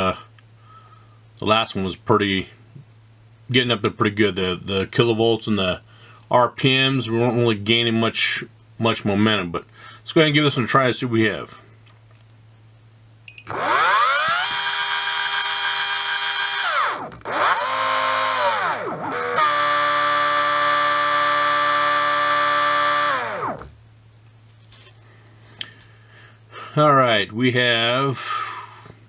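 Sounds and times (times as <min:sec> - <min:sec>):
electric motor whine: 0:13.4 - 0:23.8.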